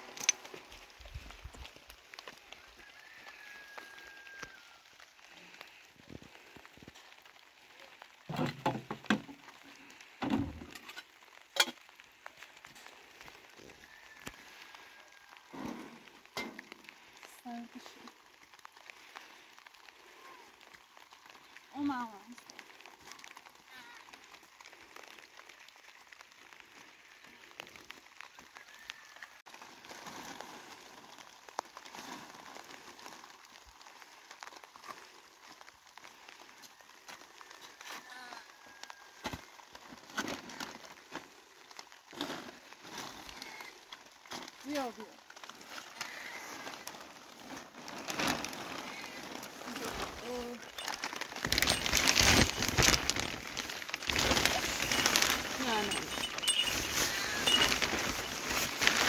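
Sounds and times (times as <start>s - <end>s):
light rain pattering: 0.0s - 59.0s
plastic cans knocking and rattling: 8.2s - 11.9s, 43.9s - 59.0s.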